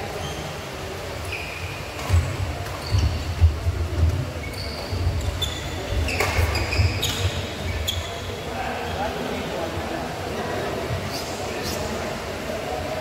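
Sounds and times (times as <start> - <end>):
shoes squeaking on court: 1.2 - 8.3.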